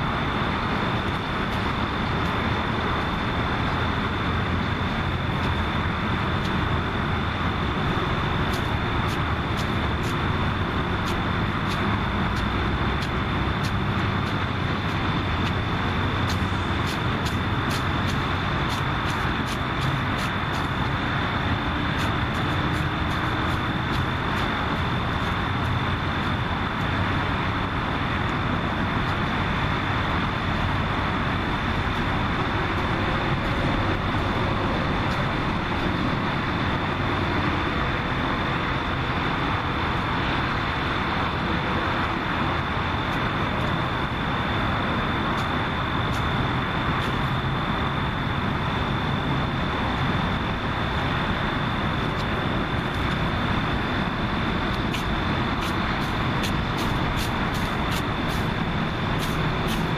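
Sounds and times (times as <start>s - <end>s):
outdoor background noise: 0.0s - 59.9s.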